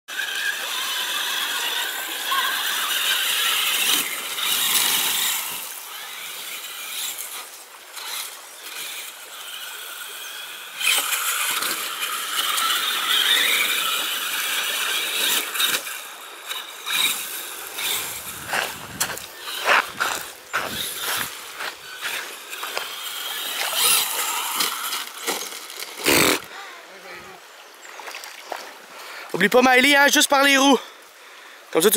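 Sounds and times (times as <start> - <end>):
electric motor and gear whine: 0.1 - 26.5
tyres rattling on gravel: 16.9 - 26.6.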